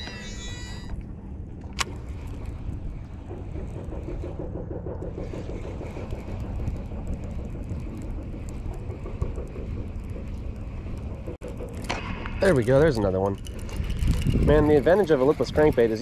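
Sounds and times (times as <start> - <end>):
fishing reel being cranked: 0.0 - 1.0, 12.4 - 16.0
low rumble: 0.0 - 15.9.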